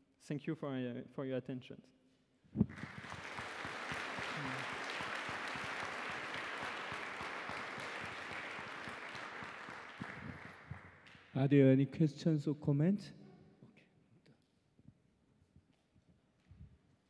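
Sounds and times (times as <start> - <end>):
audience applauding: 2.6 - 11.3.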